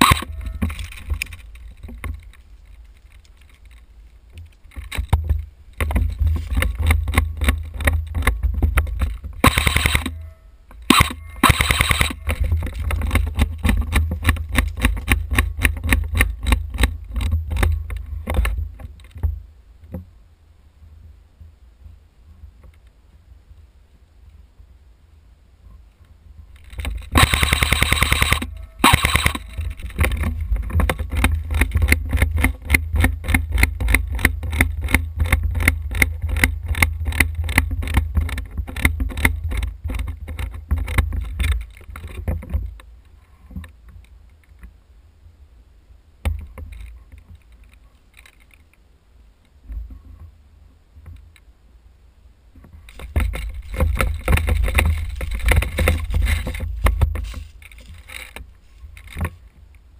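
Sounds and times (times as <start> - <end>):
airsoft gun full-auto burst: 0.0 - 0.3, 9.4 - 10.2, 10.9 - 12.2, 27.1 - 29.5
airsoft gun single shots: 0.0 - 0.3, 9.4 - 10.2, 10.9 - 12.2, 27.2 - 29.5
rustling on microphone: 0.0 - 20.2, 25.6 - 44.8, 52.5 - 59.9.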